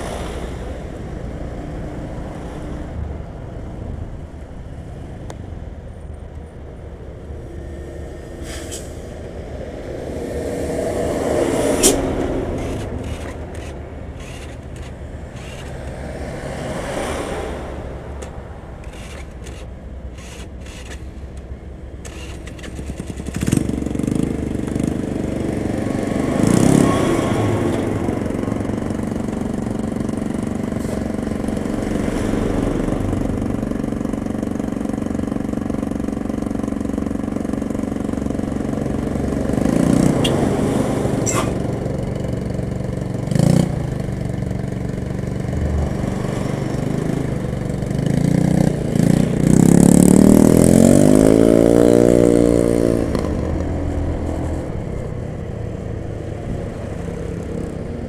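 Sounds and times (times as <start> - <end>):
diesel trucks creeping past: 0.0 - 58.0
engine revving up: 10.6 - 21.1, 22.0 - 28.2, 45.1 - 53.6
engine idling: 12.5 - 16.1.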